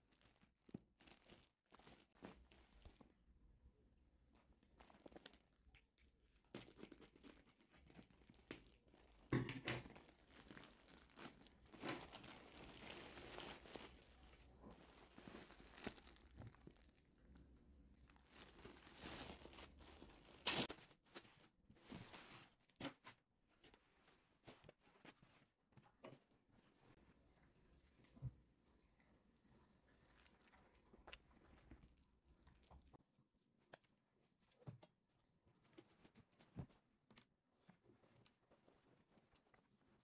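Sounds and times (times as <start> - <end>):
plastic bags crinkling: 0.0 - 3.1, 4.8 - 22.5
plastic ripping: 9.8 - 16.9, 18.2 - 21.0.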